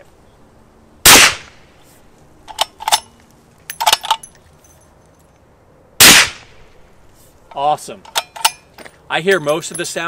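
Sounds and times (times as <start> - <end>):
suppressed rifle shot with echo: 1.1 - 1.6, 6.0 - 6.6
metallic clicks and clinks: 2.5 - 5.4, 7.5 - 10.0.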